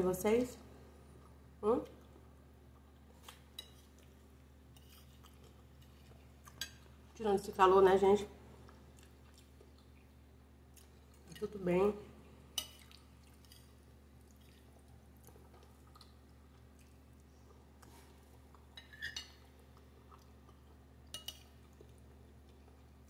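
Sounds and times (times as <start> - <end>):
faint steady hum: 0.0 - 23.0
cutlery clinking: 18.8 - 19.4.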